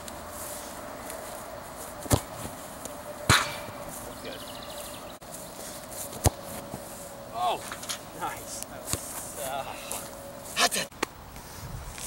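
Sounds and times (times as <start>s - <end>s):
soccer ball kicked thumps: 2.0s - 2.5s, 6.1s - 6.7s.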